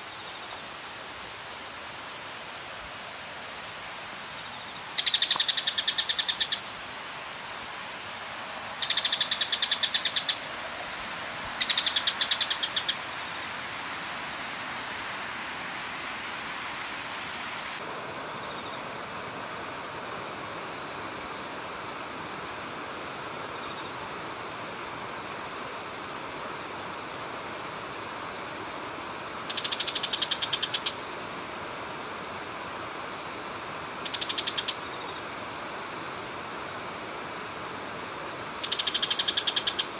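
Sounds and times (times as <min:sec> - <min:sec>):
rapid trilling call: 0:04.9 - 0:06.8, 0:08.8 - 0:10.6, 0:11.6 - 0:13.1, 0:29.5 - 0:31.0, 0:34.0 - 0:34.9, 0:38.6 - 0:39.9.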